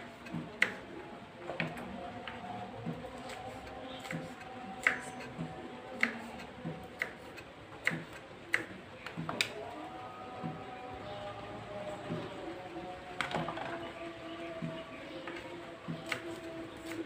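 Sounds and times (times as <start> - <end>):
knife chopping on wooden board: 1.6 - 9.5.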